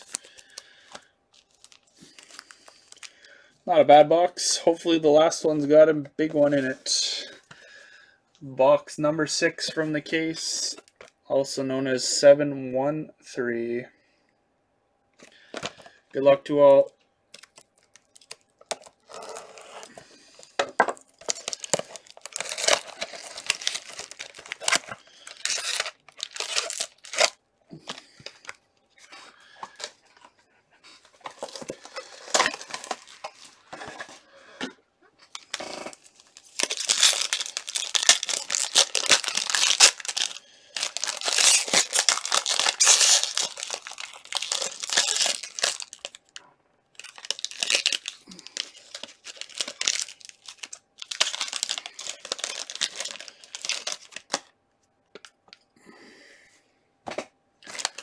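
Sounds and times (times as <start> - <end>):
wrapping tearing and crinkling: 0.0 - 3.4, 17.3 - 30.4, 31.0 - 34.3, 35.2 - 54.5, 57.6 - 58.0.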